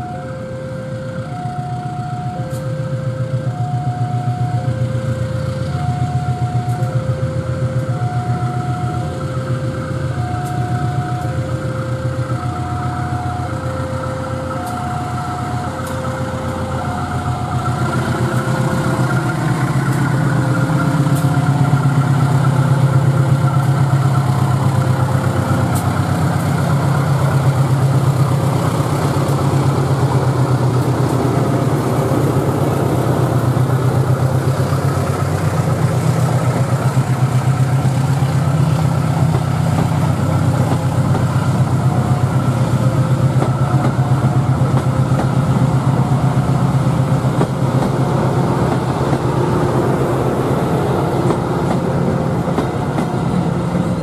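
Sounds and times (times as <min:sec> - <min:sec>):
level-crossing alarm two tones: 0:00.0 - 0:25.2
locomotive engine drone: 0:00.0 - 0:54.0
train wheel clicks: 0:06.6 - 0:07.0, 0:14.5 - 0:54.0.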